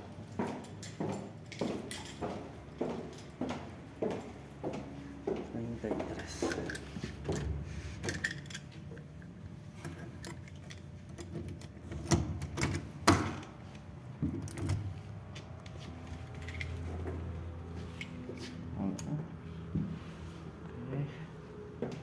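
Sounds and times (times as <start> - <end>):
keys jangling and clicking: 0.0 - 4.7, 6.1 - 13.5, 16.0 - 19.1.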